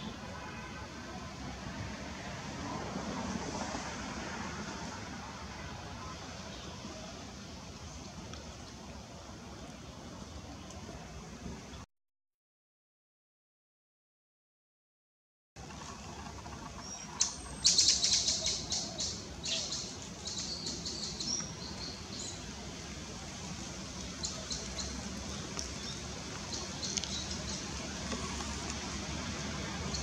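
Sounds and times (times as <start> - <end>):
birds chirping: 24.0 - 28.8.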